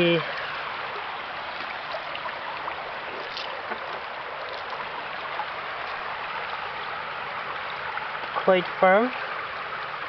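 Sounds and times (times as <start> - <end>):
faint water trickles: 0.0 - 10.0
river water rushing: 0.0 - 10.0.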